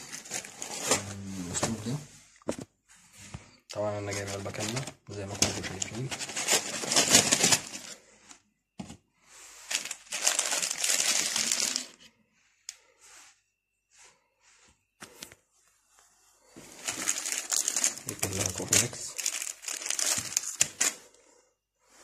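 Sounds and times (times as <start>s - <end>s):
foil sachets crinkling: 0.0s - 1.2s, 4.0s - 8.0s, 9.7s - 12.0s, 16.7s - 21.1s.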